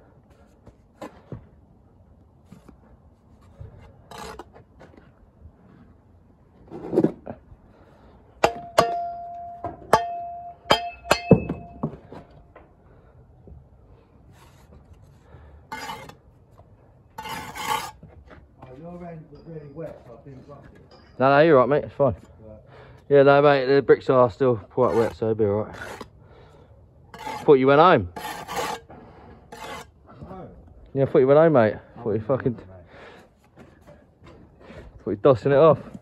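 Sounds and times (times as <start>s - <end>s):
trowel scraping brick and mortar: 2.5s - 5.2s, 14.4s - 16.3s, 17.2s - 18.2s, 24.6s - 26.2s, 27.1s - 30.0s
trowel striking brick: 8.4s - 12.0s.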